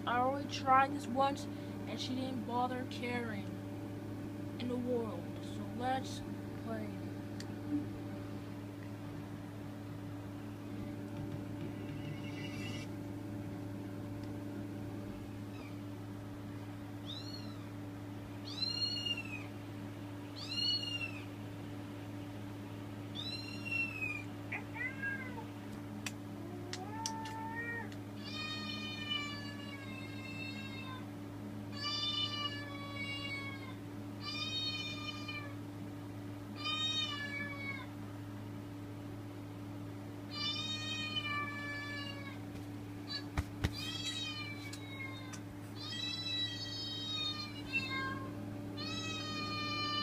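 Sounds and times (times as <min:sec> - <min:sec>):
steady low hum: 0:00.0 - 0:50.0
recorded cat meows: 0:11.9 - 0:12.9, 0:23.2 - 0:25.4, 0:26.6 - 0:31.0.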